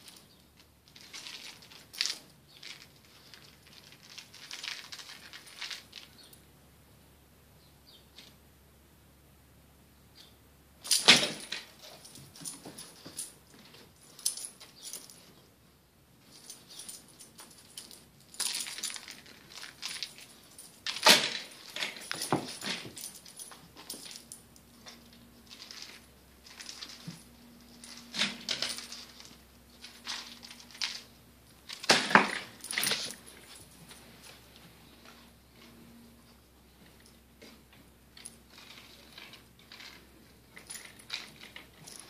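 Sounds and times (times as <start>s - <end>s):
collar jingling: 10.8s - 15.5s, 16.2s - 42.0s.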